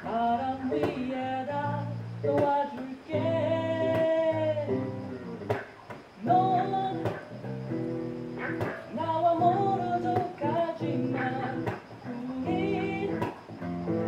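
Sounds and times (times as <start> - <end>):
electric bass guitar: 0.0 - 2.5, 3.1 - 5.6, 6.2 - 14.0
man singing: 0.0 - 4.8, 6.2 - 7.2, 8.9 - 13.4.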